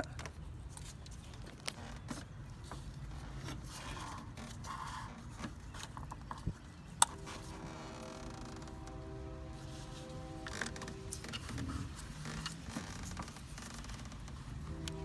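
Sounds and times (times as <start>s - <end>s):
faint multi-tone hum: 0.0s - 15.0s.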